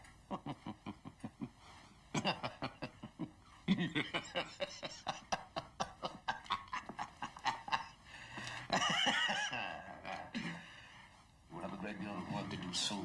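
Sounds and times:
men laughing: 0:00.3 - 0:10.6.

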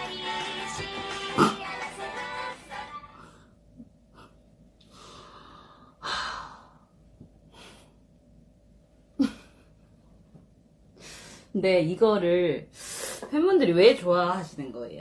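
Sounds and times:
guitar song: 0:00.0 - 0:02.9.

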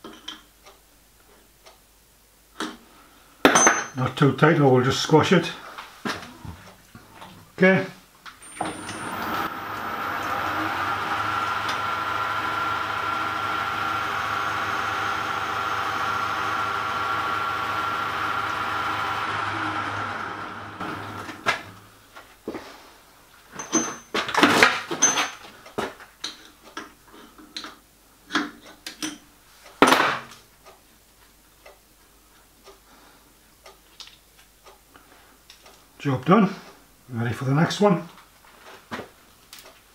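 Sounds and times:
metal lathe humming and whining: 0:08.4 - 0:21.9.

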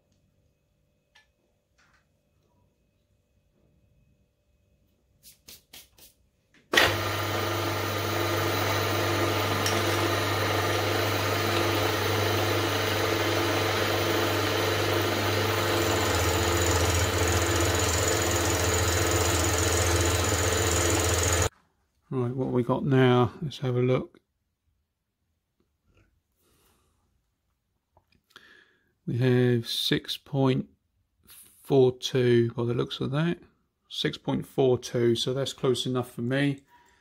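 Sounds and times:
milling machine motor humming: 0:06.7 - 0:21.5
end mill cutting brass: 0:06.8 - 0:21.5.

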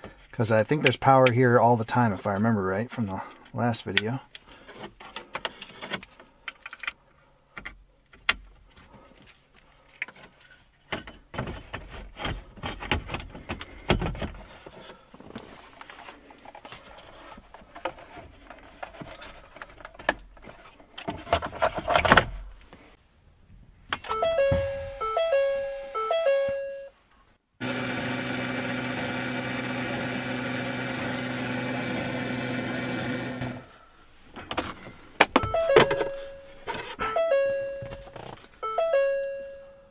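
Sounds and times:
electronic chime tones: 0:24.1 - 0:27.0, 0:35.4 - 0:39.9.

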